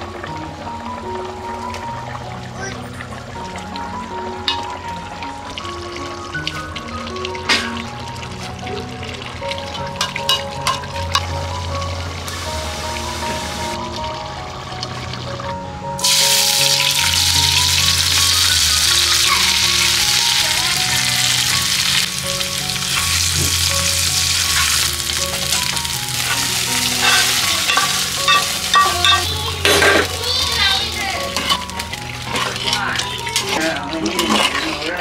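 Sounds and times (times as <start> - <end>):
food sizzling in oil: 0.5 - 14.3, 16.0 - 35.0
metal spatula scraping pan: 26.2 - 30.2, 31.3 - 35.0.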